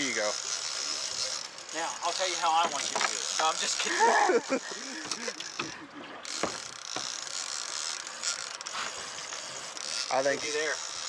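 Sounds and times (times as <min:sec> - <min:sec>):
fishing reel whirring and clicking: 0:00.0 - 0:11.0
knocks: 0:06.4 - 0:07.1.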